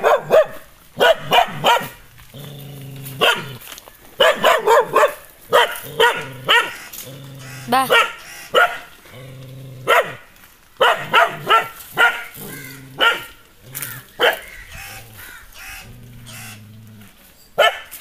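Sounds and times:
dog barking aggressively: 0:00.0 - 0:02.0, 0:03.1 - 0:03.6, 0:04.2 - 0:06.9, 0:07.7 - 0:08.9, 0:09.8 - 0:15.4, 0:17.6 - 0:18.0.

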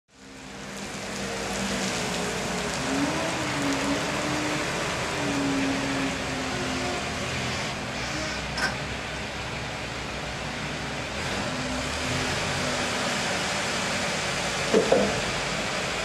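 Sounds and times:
forklift engine running: 0:00.2 - 0:16.0.

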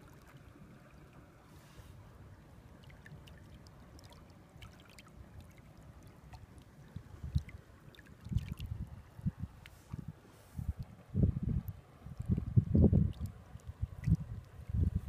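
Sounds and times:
shallow water trickling and lapping: 0:00.0 - 0:15.0
wind buffeting microphone: 0:08.3 - 0:15.0.

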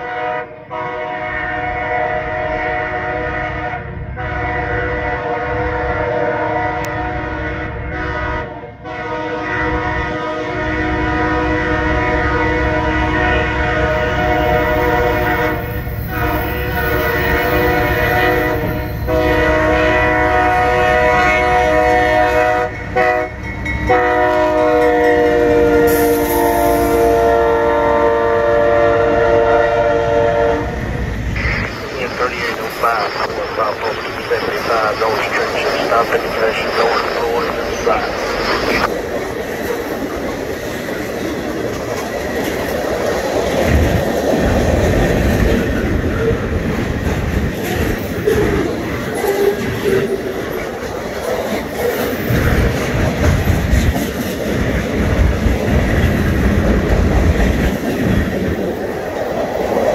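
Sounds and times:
locomotive air horn blasts: 0:00.0 - 0:30.8
train engine and wheels rumbling: 0:00.0 - 0:59.9.

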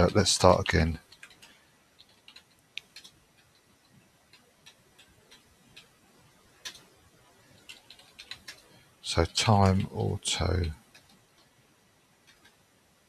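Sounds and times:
typing on computer keyboard: 0:00.0 - 0:08.8, 0:12.2 - 0:12.6.

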